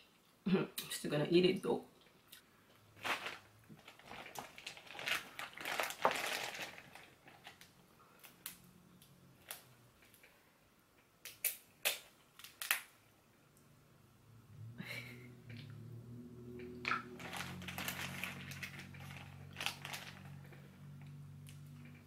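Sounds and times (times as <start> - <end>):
crab shells cracking: 11.2 - 12.9.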